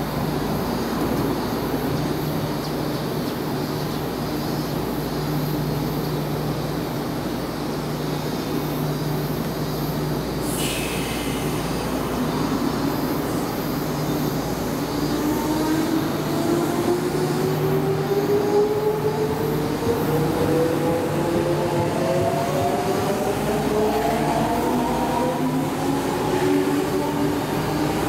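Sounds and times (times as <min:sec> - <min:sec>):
short hiss: 0:10.4 - 0:13.1.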